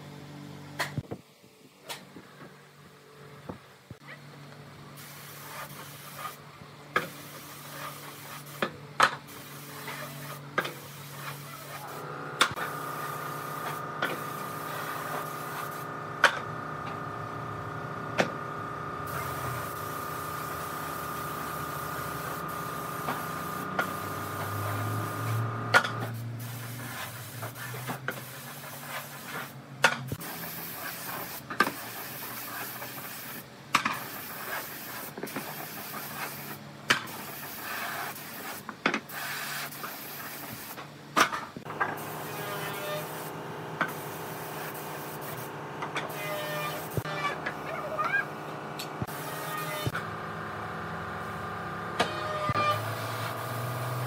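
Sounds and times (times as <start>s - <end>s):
woodworking machine motor running: 12.0s - 26.0s, 48.3s - 54.0s.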